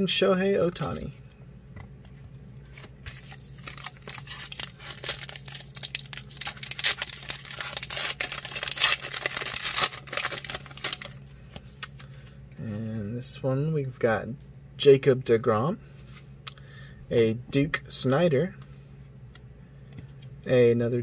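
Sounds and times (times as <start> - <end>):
plastic wrapper crinkling: 3.1 - 11.2.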